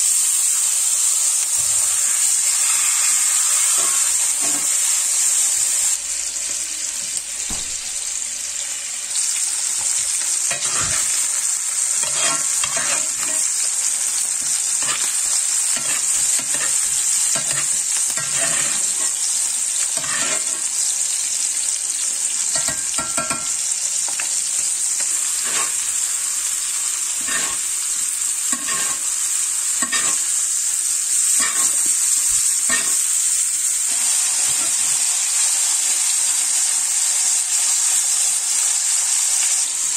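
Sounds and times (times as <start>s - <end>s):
steak sizzling in a pan: 0.0s - 39.9s
metal spoon clinking on a pan: 12.0s - 13.5s, 15.8s - 19.2s, 22.5s - 24.2s, 29.8s - 30.2s, 32.7s - 33.0s.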